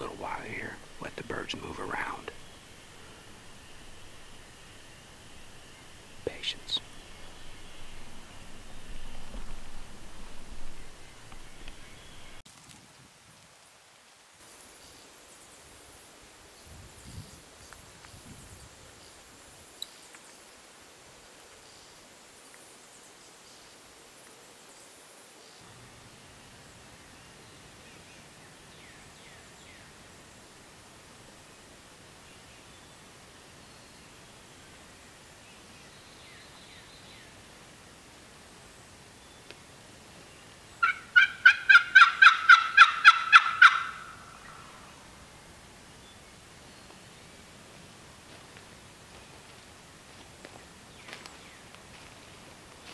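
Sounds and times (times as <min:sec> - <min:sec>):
distant bird chirps: 0:00.0 - 0:12.4, 0:40.2 - 0:45.1
turkey calls: 0:00.0 - 0:12.4, 0:40.8 - 0:44.7
faint steady hiss: 0:00.0 - 0:52.9.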